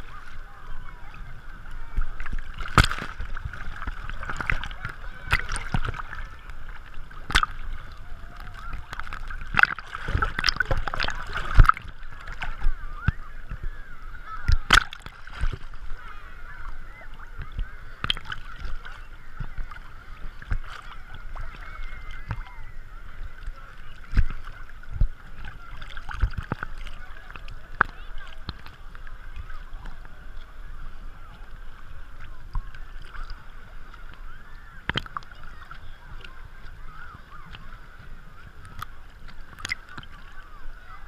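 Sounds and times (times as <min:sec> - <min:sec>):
small waves sloshing: 0:00.0 - 0:41.0
water knocks on camera: 0:02.0 - 0:06.4, 0:07.2 - 0:07.7, 0:08.4 - 0:13.7, 0:14.4 - 0:16.0, 0:17.4 - 0:21.5, 0:24.0 - 0:28.9.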